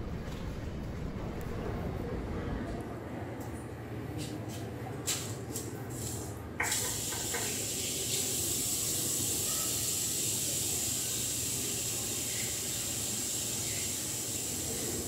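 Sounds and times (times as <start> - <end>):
tap water running into sink: 6.0 - 10.6.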